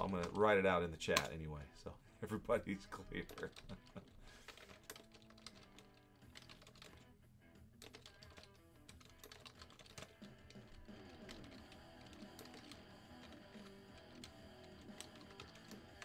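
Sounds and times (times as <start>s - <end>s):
quiet background music: 0.0s - 16.0s
keyboard typing: 3.1s - 7.1s, 7.8s - 16.0s.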